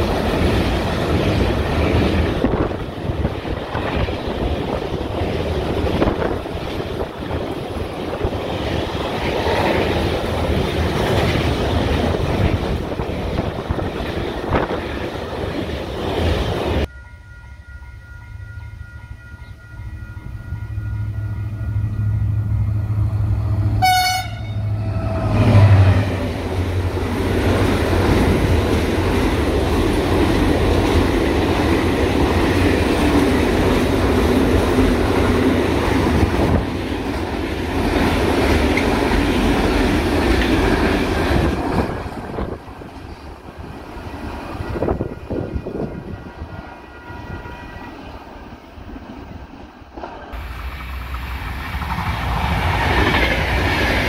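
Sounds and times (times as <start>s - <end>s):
train horn toot: 19.1s - 26.2s, 44.6s - 48.2s.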